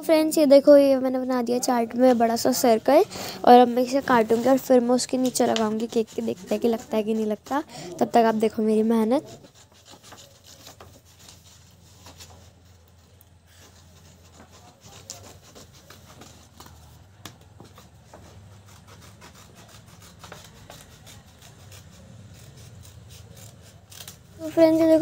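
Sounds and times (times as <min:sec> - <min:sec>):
scissors cutting paper: 0:02.0 - 0:17.0, 0:17.6 - 0:25.0
paper rustling: 0:09.6 - 0:18.2.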